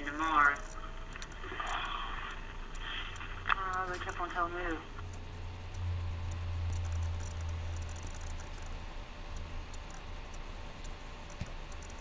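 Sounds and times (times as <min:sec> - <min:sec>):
low steady hum: 0:00.0 - 0:12.0
mouse and keyboard clicks: 0:06.3 - 0:08.8, 0:09.4 - 0:12.0.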